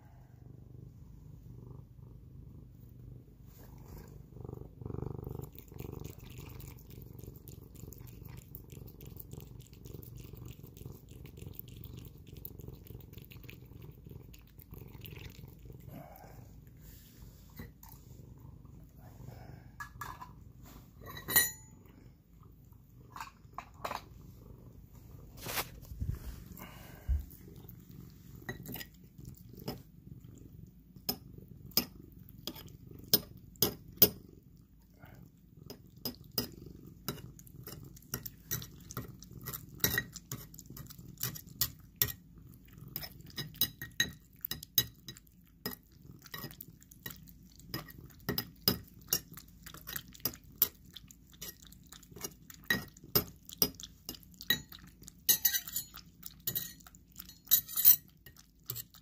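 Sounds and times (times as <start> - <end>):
cat chewing and licking: 3.6 - 21.1, 21.7 - 59.0
clinks against ceramic bowl: 21.0 - 21.7, 54.5 - 58.8.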